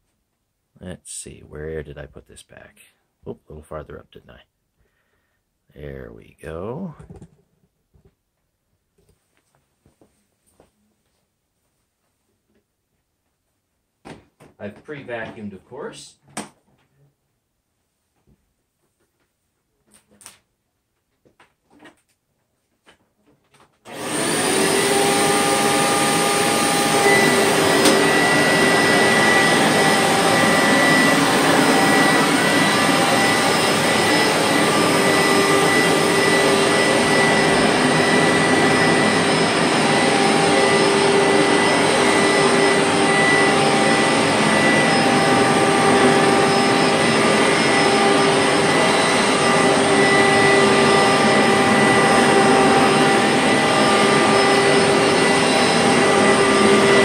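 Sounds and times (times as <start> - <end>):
carpet cleaner motor whining: 23.9 - 57.0.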